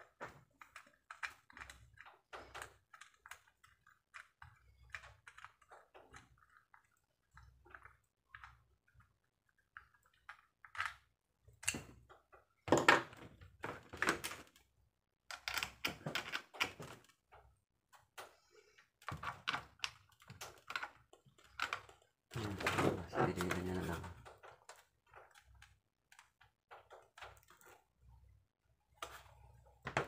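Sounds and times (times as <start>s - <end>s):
hard plastic clicking and knocking: 15.3s - 27.8s.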